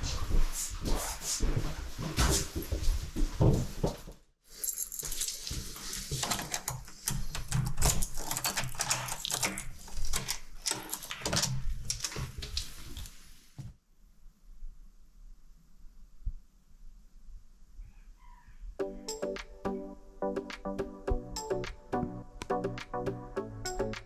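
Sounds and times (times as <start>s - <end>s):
keys jangling: 4.5s - 5.5s.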